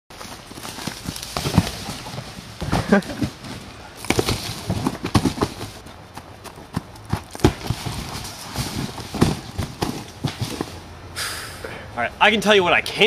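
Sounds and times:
cardboard boxes knocking: 0:01.4 - 0:05.8, 0:07.1 - 0:10.7.

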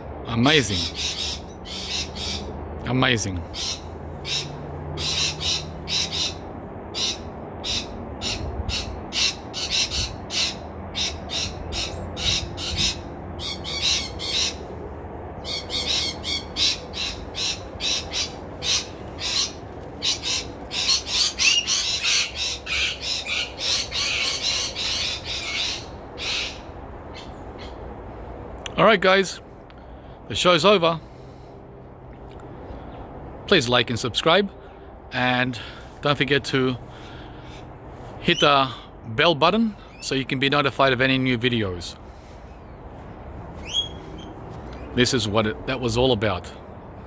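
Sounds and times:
parrots calling: 0:00.5 - 0:02.6, 0:03.2 - 0:27.9, 0:43.6 - 0:45.6.

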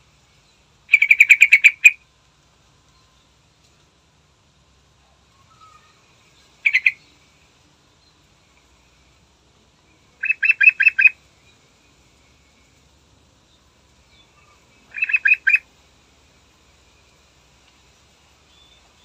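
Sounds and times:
bulbul singing: 0:00.4 - 0:02.0, 0:05.4 - 0:08.3, 0:09.8 - 0:12.8, 0:13.4 - 0:15.7.

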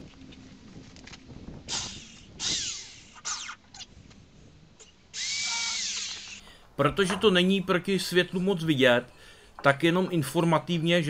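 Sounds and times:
power drill whirring: 0:01.7 - 0:03.6, 0:04.8 - 0:06.5.

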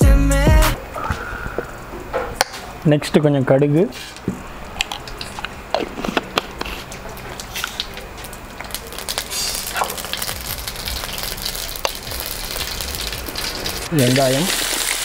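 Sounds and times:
mustard seeds popping: 0:04.8 - 0:13.9
oil frying sizzle: 0:06.4 - 0:15.0.

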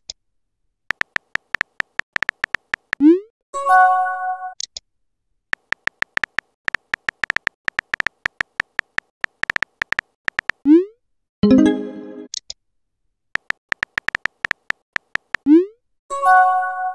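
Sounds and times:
phone keyboard tap clicks: 0:00.9 - 0:03.0, 0:05.6 - 0:10.6, 0:13.4 - 0:15.5.

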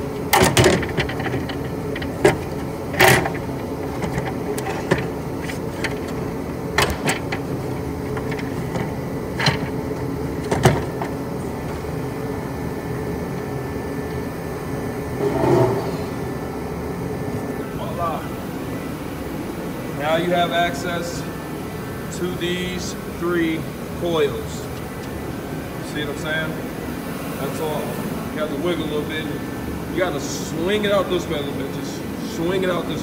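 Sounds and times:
steady mechanical hum: 0:00.0 - 0:33.0
clicks and knocks of tools: 0:00.3 - 0:06.2, 0:06.8 - 0:09.8.

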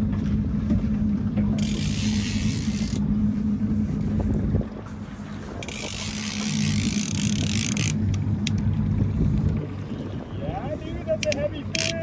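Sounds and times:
fishing reel gears whirring: 0:01.6 - 0:03.1, 0:05.6 - 0:08.7, 0:11.2 - 0:12.0
wind on microphone: 0:03.5 - 0:11.1
sharp clicks: 0:11.2 - 0:12.0.

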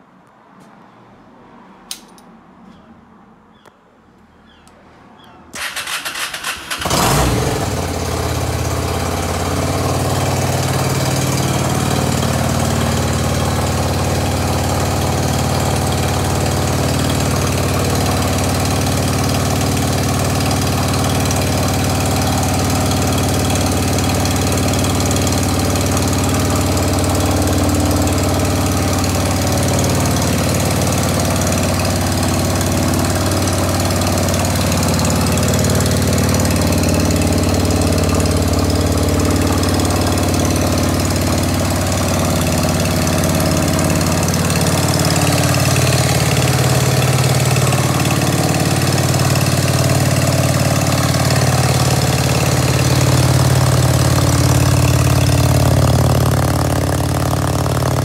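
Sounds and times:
motorcycle starter cranking: 0:05.5 - 0:07.6
motorcycle engine idling: 0:05.8 - 0:58.0.

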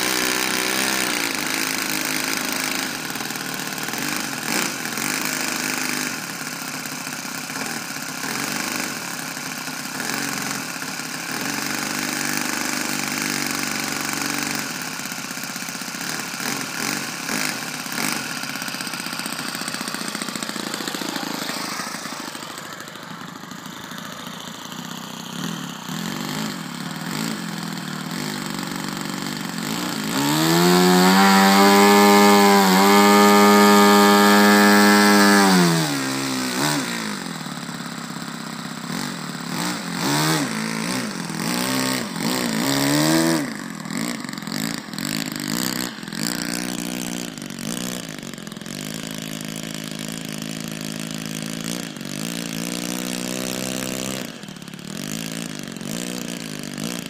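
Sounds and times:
model airplane engine revving: 0:00.0 - 0:57.0.

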